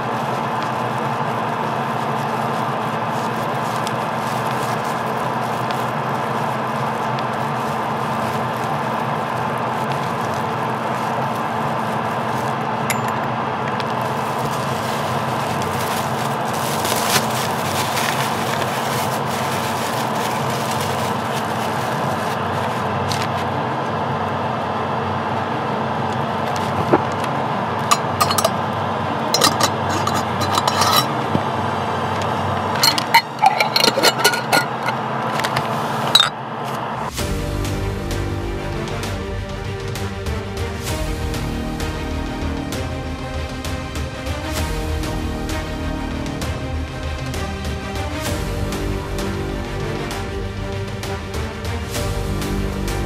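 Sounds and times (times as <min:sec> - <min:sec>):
steady motor hum: 0:00.0 - 0:40.3
small metal and glass parts clinking: 0:12.9 - 0:13.3, 0:27.9 - 0:28.6, 0:29.4 - 0:31.1, 0:32.8 - 0:35.6, 0:36.2 - 0:36.4.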